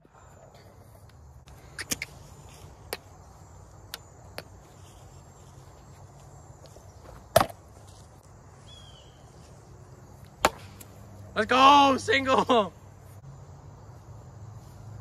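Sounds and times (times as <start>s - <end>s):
bat hitting ball crack: 10.4s - 10.9s.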